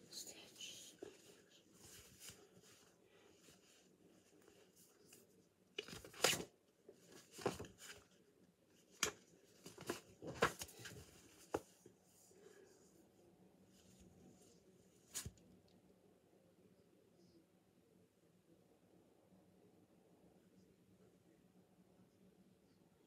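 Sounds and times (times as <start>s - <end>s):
rustling and scraping at microphone: 0.1s - 6.2s.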